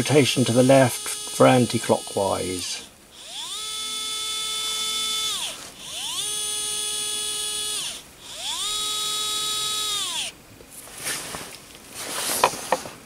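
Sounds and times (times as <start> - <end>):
electric screwdriver whining: 0.0 - 10.4.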